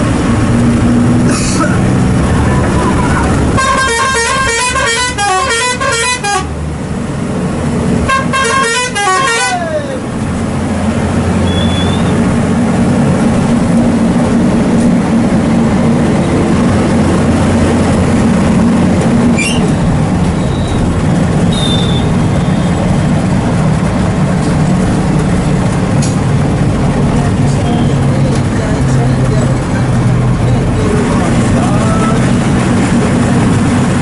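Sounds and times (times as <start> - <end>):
bus engine drone: 0.0 - 34.0
brief high squeaks: 11.4 - 12.1, 19.4 - 19.8.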